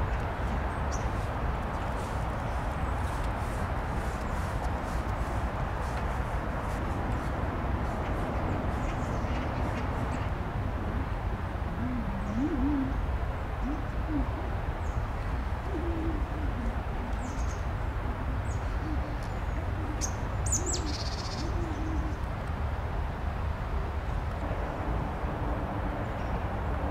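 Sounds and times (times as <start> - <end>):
low outdoor rumble: 0.0 - 26.9
dove cooing: 11.6 - 14.6, 15.2 - 22.3.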